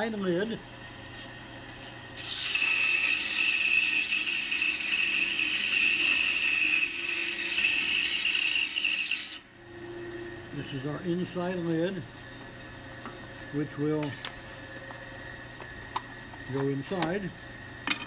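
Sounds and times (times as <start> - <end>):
scroll saw cutting wood: 2.2 - 9.5.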